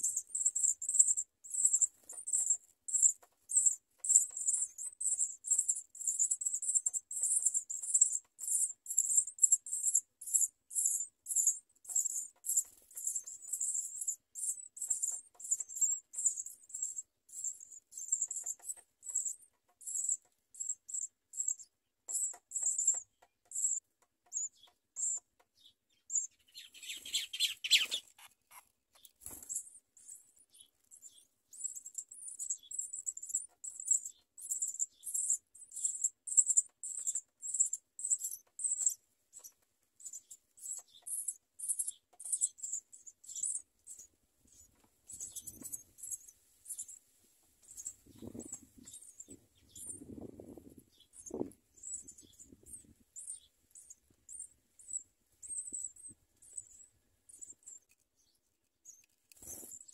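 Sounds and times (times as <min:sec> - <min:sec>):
nestling birds chirping: 0:00.0 - 0:47.0, 0:47.6 - 0:59.9
wings fluttering: 0:26.5 - 0:29.7, 0:59.4 - 0:59.9.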